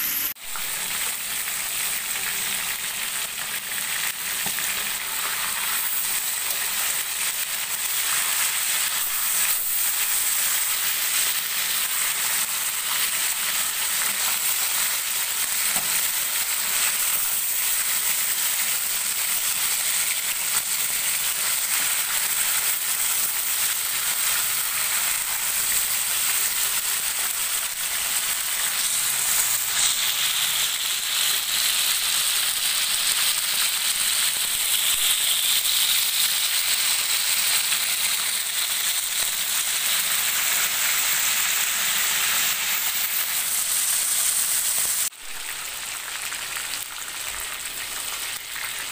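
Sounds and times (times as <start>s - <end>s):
chicken sizzling in hot oil: 0.0s - 48.9s.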